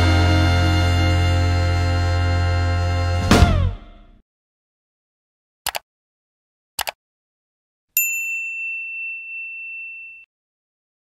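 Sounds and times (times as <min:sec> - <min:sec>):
mouse clicks: 0:06.8 - 0:07.0
bright bell ding: 0:08.0 - 0:10.3.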